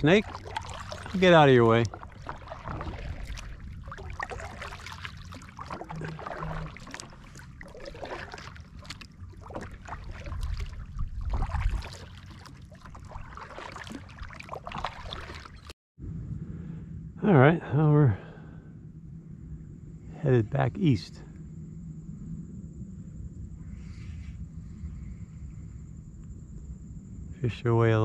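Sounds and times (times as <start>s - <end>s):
low rumble: 0.0s - 13.4s, 16.0s - 27.8s
paddle strokes in water: 0.0s - 15.7s
water dripping off paddle: 0.0s - 15.7s.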